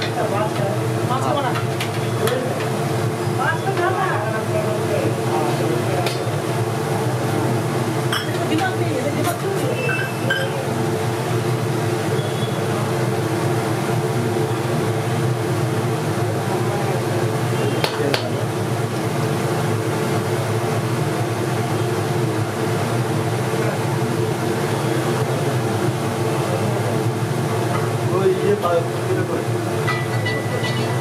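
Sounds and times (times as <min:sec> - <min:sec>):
steady mechanical hum: 0:00.0 - 0:31.0.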